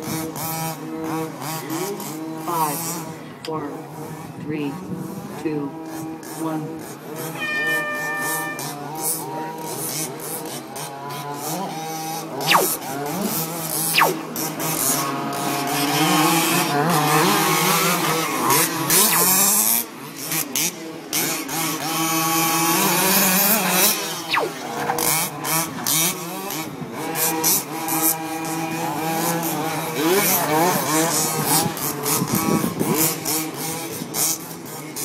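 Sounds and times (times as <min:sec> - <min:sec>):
small two-stroke engines buzzing: 0:00.0 - 0:07.4, 0:08.1 - 0:35.0
quick falling whines: 0:07.4 - 0:08.8, 0:12.5 - 0:12.8, 0:13.9 - 0:14.2, 0:19.0 - 0:19.4, 0:24.2 - 0:24.7.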